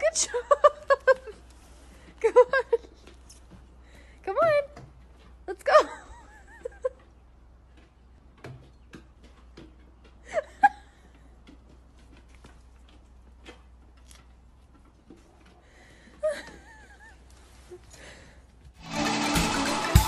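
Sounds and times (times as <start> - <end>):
person laughing: 5.8 - 7.1, 16.2 - 17.3.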